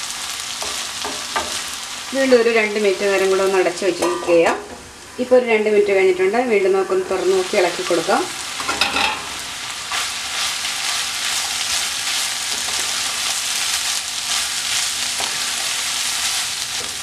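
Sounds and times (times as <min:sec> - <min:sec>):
seeds sizzling in a pan: 0:00.0 - 0:04.0, 0:07.2 - 0:17.0
spatula scraping a pan: 0:09.9 - 0:17.0.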